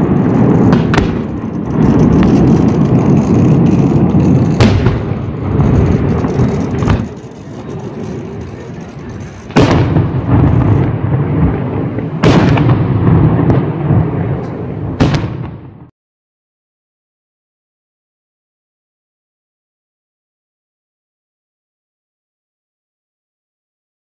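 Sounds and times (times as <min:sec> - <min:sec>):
firework bangs with rumbling echo: 0:00.0 - 0:15.9.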